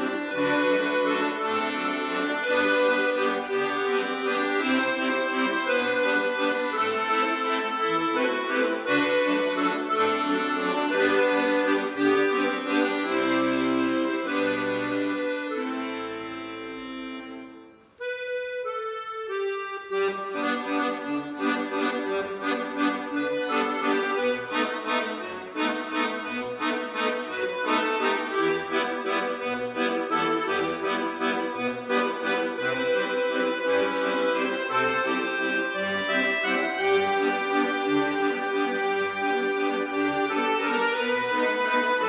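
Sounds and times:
accordions playing chords: 0.0 - 42.0.

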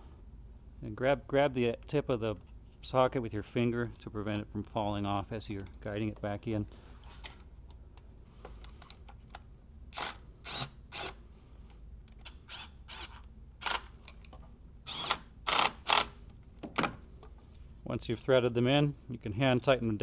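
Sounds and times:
socket ratchet clicking: 12.1 - 14.3, 14.9 - 16.2.

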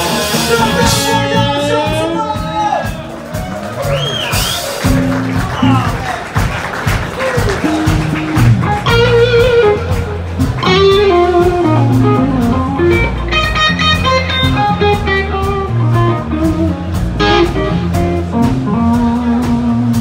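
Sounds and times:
live blues band playing: 0.0 - 20.0
electric guitar lead lines: 7.3 - 20.0.

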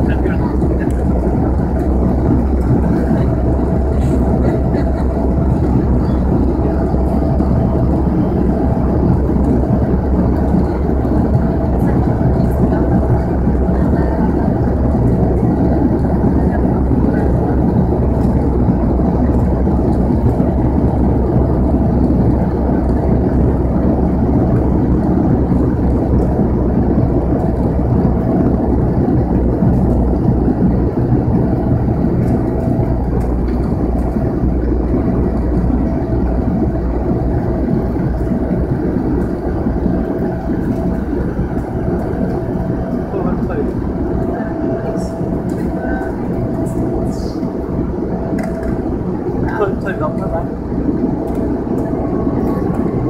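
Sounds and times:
steady hum tone: 0.0 - 53.0
turboprop cabin drone: 0.0 - 53.0.

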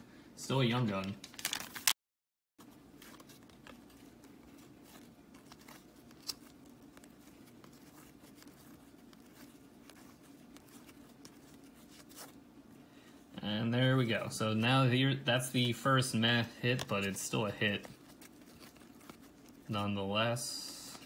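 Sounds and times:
faint steady hum: 0.0 - 1.9, 2.6 - 21.0
cards flicking and rustling: 0.8 - 2.0, 2.6 - 12.5, 15.4 - 21.0.

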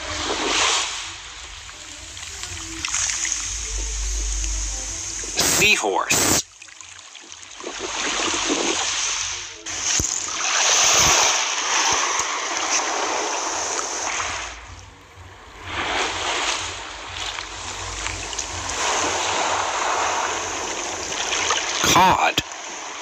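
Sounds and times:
rushing water like surf: 0.0 - 23.0.

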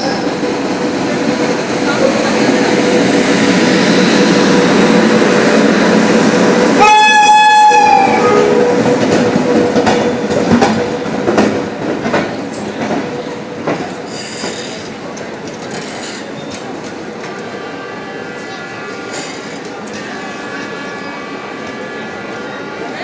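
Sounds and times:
electric locomotive passing: 0.0 - 23.0
train horn honk: 6.8 - 8.8, 17.4 - 22.9
wheels clicking over rail joints: 8.8 - 17.5.

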